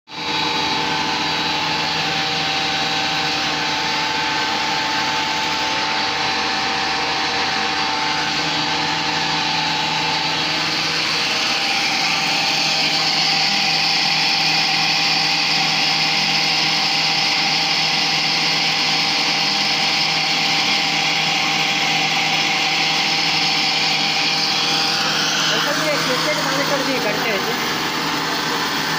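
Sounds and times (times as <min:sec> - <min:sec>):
grain mill motor whining: 0:00.1 - 0:28.9.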